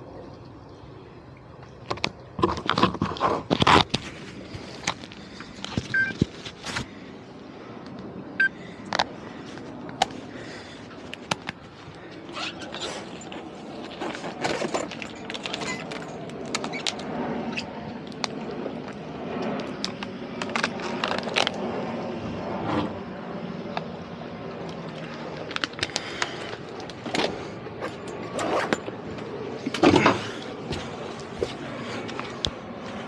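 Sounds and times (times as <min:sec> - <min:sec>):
low steady running sound: 0:00.0 - 0:33.0.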